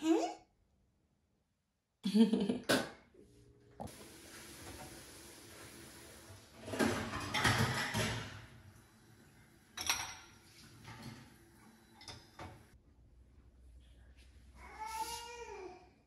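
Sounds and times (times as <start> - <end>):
rush of water at sink: 3.8 - 12.8
dishes clinking: 6.6 - 8.7, 9.6 - 12.8.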